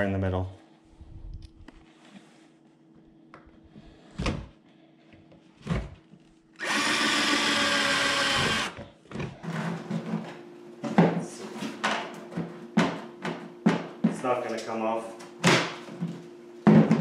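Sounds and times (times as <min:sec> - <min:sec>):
cordless drill driving screw: 0:06.6 - 0:08.8.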